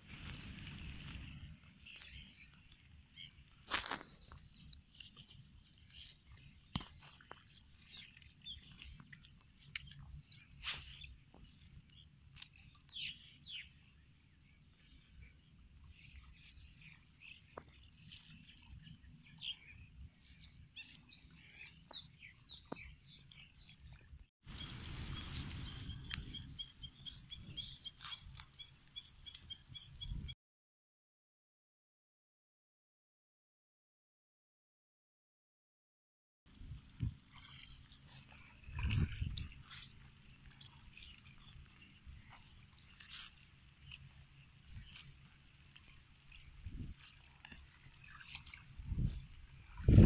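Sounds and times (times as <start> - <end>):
bird chirps: 24.6 - 30.4.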